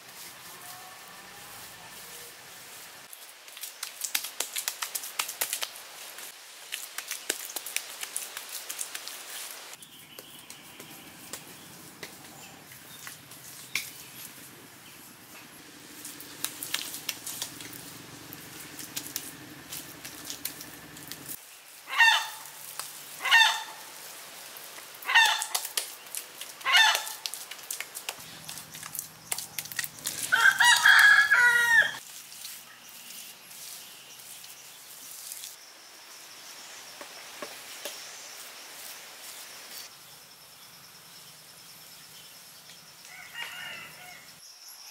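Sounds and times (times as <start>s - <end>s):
chickens calling: 21.9s - 22.5s, 23.2s - 23.8s, 25.1s - 25.7s, 26.6s - 27.2s, 29.6s - 32.0s
rooster crowing: 30.2s - 32.0s, 43.1s - 44.4s.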